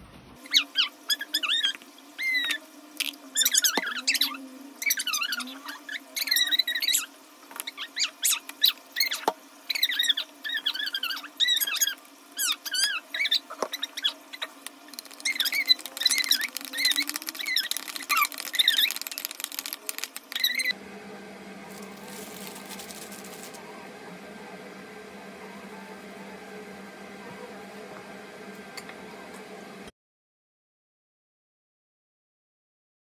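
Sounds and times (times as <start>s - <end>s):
steady low hum: 0.5s - 29.9s
spoon squeaking against a bowl: 14.9s - 19.5s.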